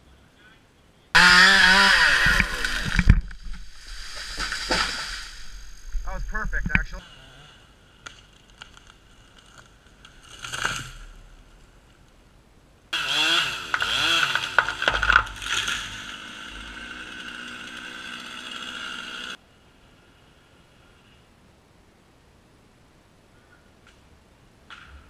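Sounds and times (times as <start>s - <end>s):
chainsaw cutting into tree trunk: 1.2s - 5.2s, 10.2s - 11.2s, 13.0s - 19.4s.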